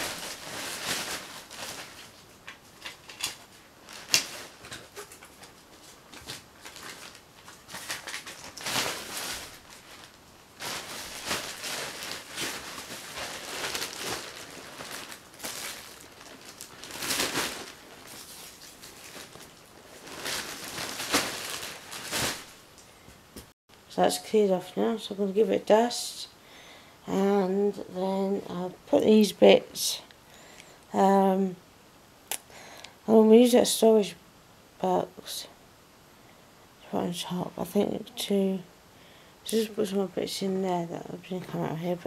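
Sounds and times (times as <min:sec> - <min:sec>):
plastic bag rustling: 0:00.0 - 0:23.0.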